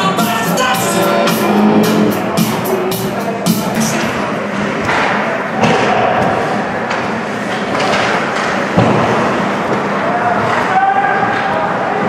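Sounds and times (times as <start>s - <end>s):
noisy rink background: 0.0s - 12.0s
hockey sticks and puck knocking: 4.6s - 11.6s.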